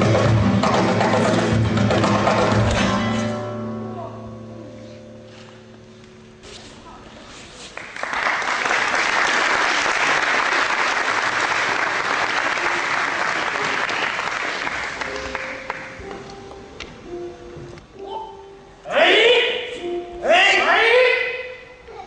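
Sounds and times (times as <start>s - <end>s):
audience applauding: 7.7s - 16.0s.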